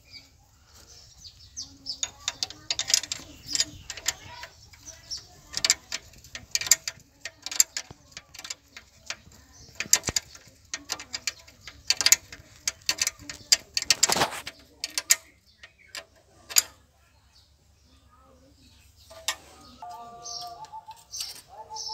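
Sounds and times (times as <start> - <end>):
spanner clinking on bolt: 2.0 - 16.8.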